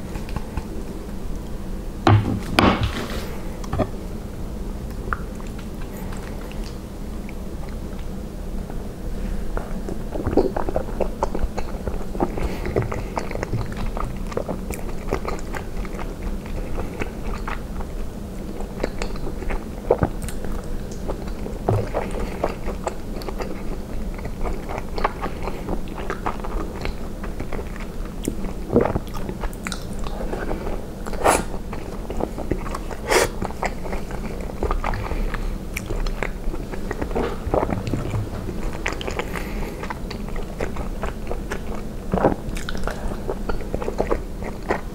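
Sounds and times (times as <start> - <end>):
steady low hum: 0.0 - 44.9
wet chewing mouth sounds: 9.6 - 44.9.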